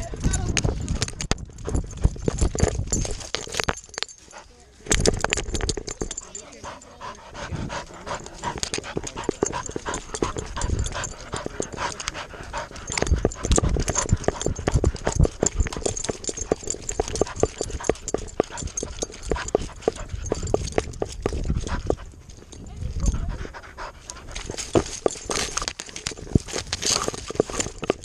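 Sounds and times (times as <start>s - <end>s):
grass rustling and rattling clicks: 0.0s - 28.0s
dog panting: 1.4s - 3.2s, 5.3s - 28.0s.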